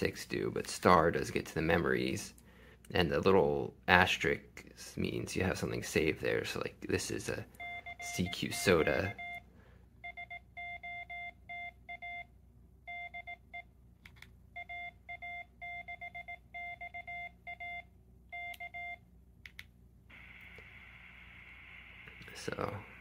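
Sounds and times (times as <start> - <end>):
morse code beeps: 7.6 - 9.4, 10.0 - 12.3, 12.9 - 13.7, 14.6 - 19.0
steady hiss: 20.1 - 23.0.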